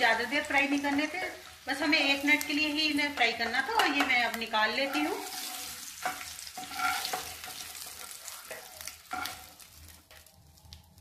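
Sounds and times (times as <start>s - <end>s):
hot oil sizzling: 0.0s - 11.0s
spatula scraping frying pan: 3.1s - 10.0s.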